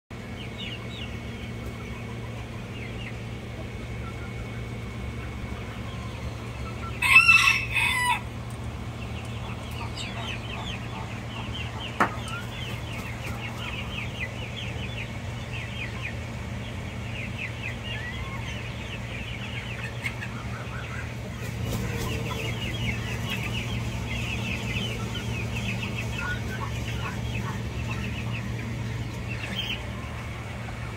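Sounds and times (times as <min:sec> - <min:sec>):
rooster crowing: 0:06.9 - 0:08.4.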